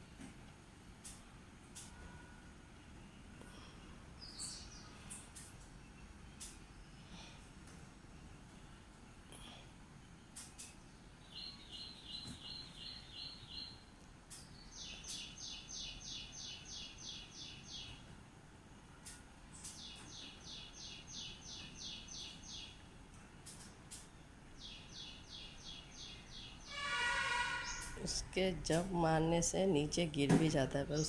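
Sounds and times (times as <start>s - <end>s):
background noise: 0.0s - 31.0s
bird chirping: 4.2s - 7.0s, 10.1s - 18.1s, 19.5s - 22.8s, 24.0s - 28.3s.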